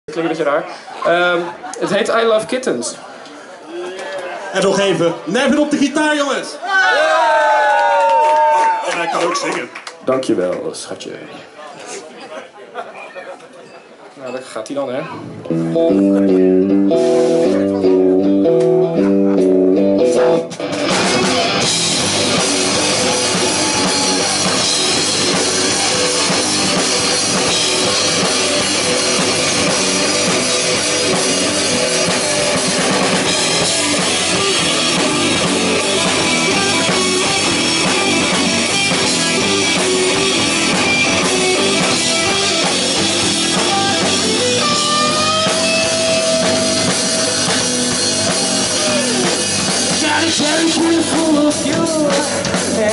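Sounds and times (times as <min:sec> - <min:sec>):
rock band playing: 0:15.2 - 0:52.9
electric guitar riff: 0:15.3 - 0:51.7.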